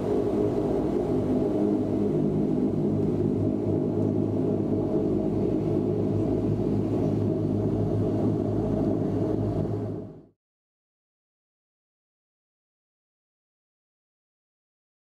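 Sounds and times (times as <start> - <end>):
constant low hum: 0.0 - 10.3
turboprop engines droning: 0.0 - 10.4.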